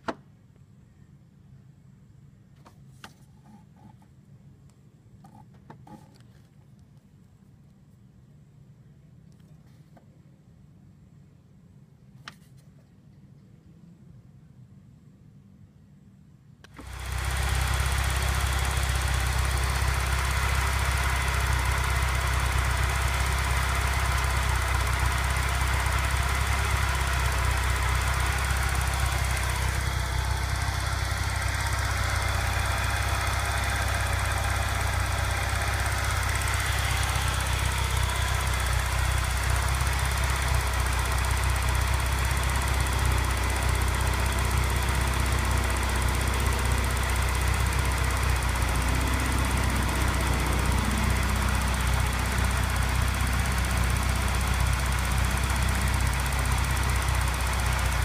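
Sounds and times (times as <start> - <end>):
car engine idling: 16.7 - 58.0.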